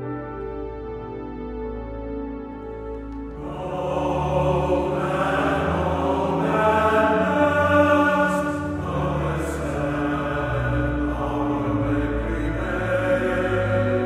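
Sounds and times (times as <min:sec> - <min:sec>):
men's choir singing: 0:03.4 - 0:14.0.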